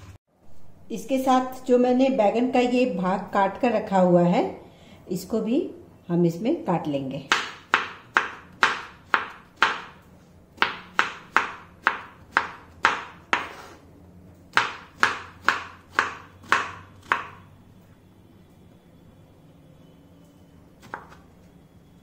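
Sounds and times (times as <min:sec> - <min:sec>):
knife chopping on wooden board: 0:07.3 - 0:10.0, 0:10.6 - 0:13.8, 0:14.5 - 0:17.4, 0:20.8 - 0:21.2.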